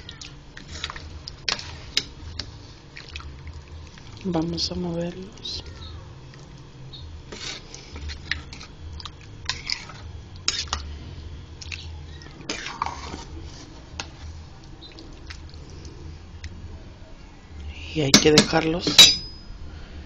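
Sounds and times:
low steady hum: 0.0s - 20.0s
spoon stirring thick beans: 0.1s - 10.9s, 11.6s - 15.9s.

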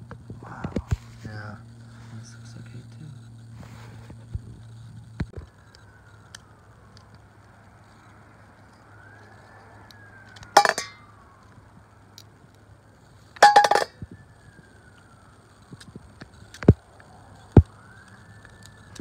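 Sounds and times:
metal clinking on steel bowl: 10.6s - 11.0s, 13.4s - 13.9s.

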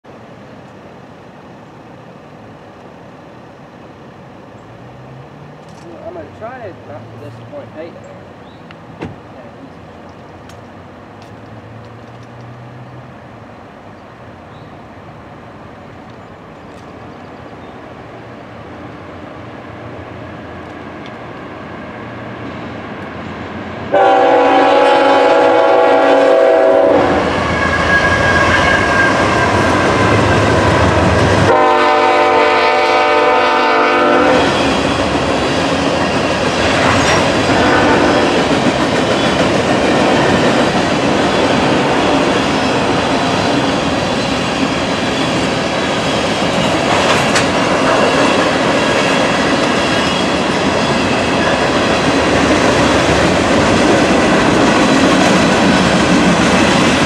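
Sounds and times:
train rumble: 0.1s - 57.0s
train horn blasts: 23.9s - 29.8s, 31.4s - 34.6s, 37.5s - 38.3s.

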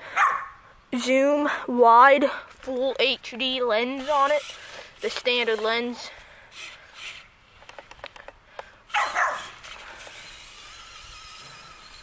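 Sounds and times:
small dog barking: 0.2s - 0.6s, 8.9s - 9.5s.

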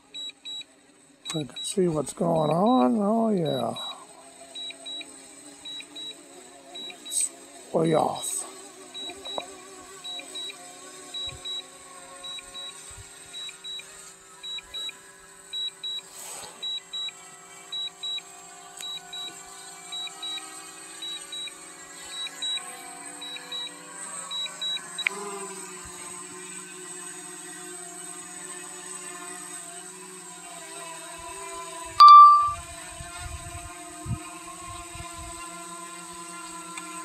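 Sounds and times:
short high beeps in pairs: 32.0s - 32.6s.

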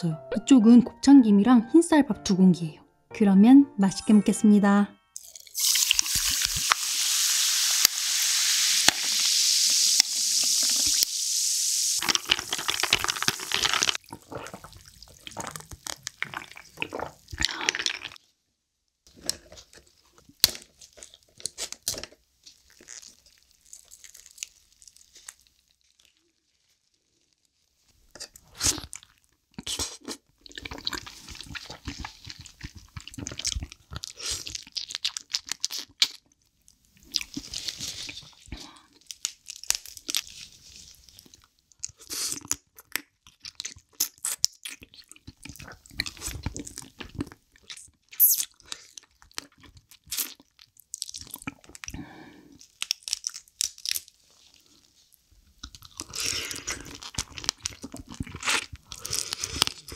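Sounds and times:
sparkling water fizzing: 5.3s - 14.0s
crab shell crunching: 12.0s - 18.2s, 28.1s - 36.3s, 37.0s - 54.2s, 55.6s - 59.9s.

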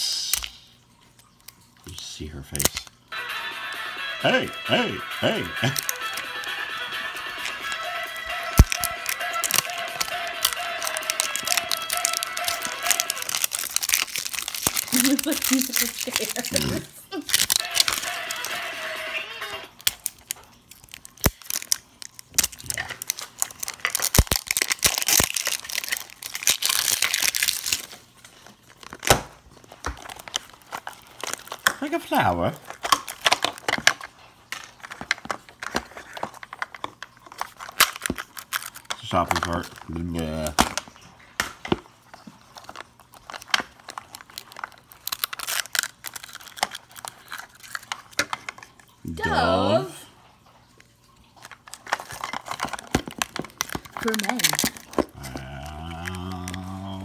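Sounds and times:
plastic wrap crinkling and tearing: 5.2s - 49.0s, 50.5s - 57.0s
plastic capsule being pried open: 8.5s - 16.3s, 19.8s - 28.0s, 28.8s - 31.8s, 32.6s - 39.8s, 51.5s - 55.2s.

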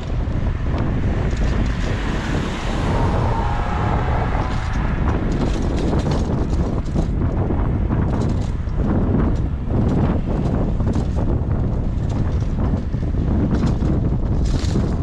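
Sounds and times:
street traffic noise: 0.0s - 15.0s
wind rumbling on microphone: 0.0s - 15.0s
car passing by: 0.6s - 6.7s.

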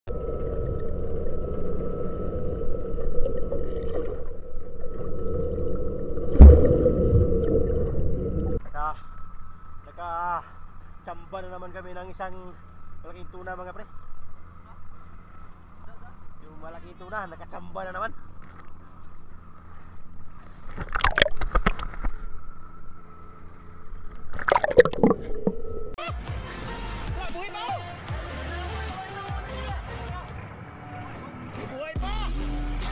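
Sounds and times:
low rumbling: 0.1s - 8.6s
underwater mechanical hum: 0.1s - 26.6s
loud thump: 6.4s - 6.8s.

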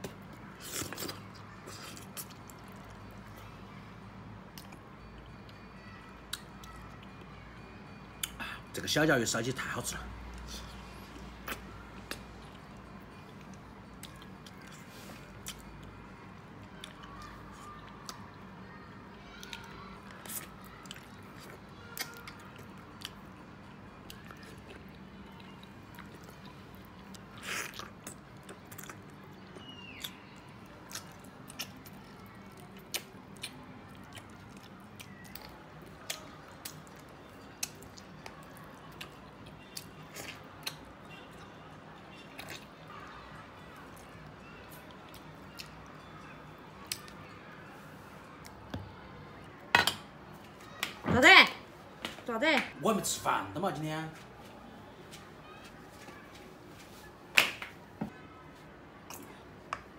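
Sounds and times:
man chewing and sucking: 0.1s - 3.0s, 24.2s - 29.1s
wet clicks and smacks: 32.8s - 40.9s.

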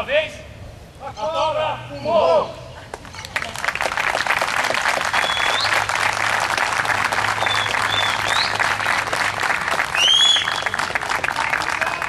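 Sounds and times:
audience applauding: 3.3s - 12.0s
rising whistles: 5.1s - 5.8s, 7.3s - 9.1s, 9.9s - 10.9s.

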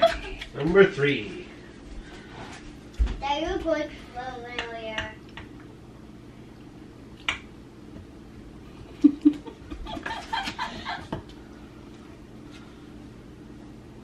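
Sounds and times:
woman laughing: 0.0s - 0.5s, 8.9s - 11.2s.

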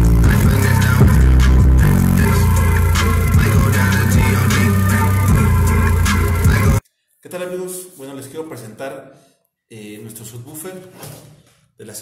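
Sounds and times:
heavy bass music through subwoofers: 0.0s - 6.8s.

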